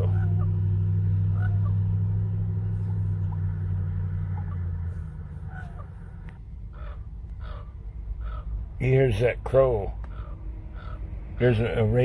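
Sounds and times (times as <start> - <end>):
vehicle engine rumble: 0.0 - 12.0
raven cawing: 6.6 - 8.6, 10.0 - 11.4.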